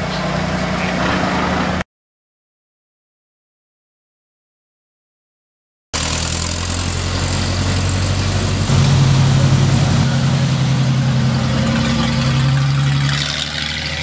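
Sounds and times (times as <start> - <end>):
fire truck engines passing: 0.0 - 1.8, 6.0 - 14.0.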